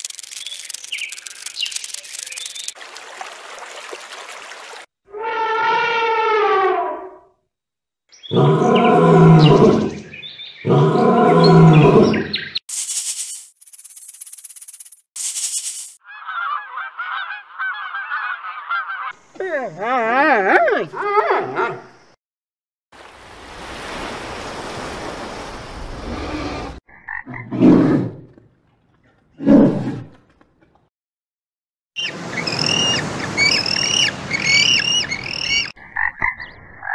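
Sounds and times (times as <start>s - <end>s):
water noise: 0.0s - 4.9s, 22.9s - 26.8s, 32.0s - 35.7s
lioness roaring: 8.3s - 10.0s, 10.6s - 12.3s.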